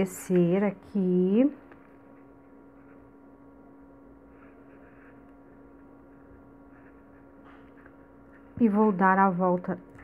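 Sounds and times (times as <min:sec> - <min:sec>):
low electrical hum: 0:00.0 - 0:10.0
soft rustles of beadwork: 0:04.1 - 0:08.8.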